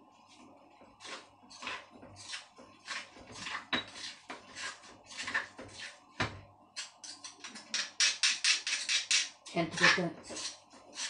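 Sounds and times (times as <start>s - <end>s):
pestle pounding in stone mortar: 7.5s - 11.0s.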